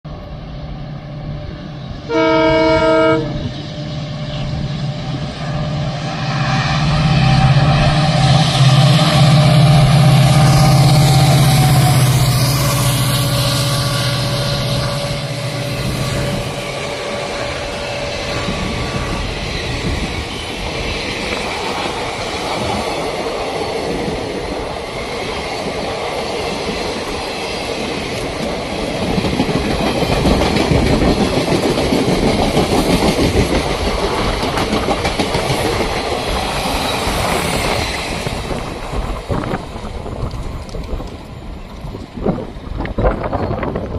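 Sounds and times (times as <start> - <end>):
train wheels clattering over rail joints: 14.5 - 43.9.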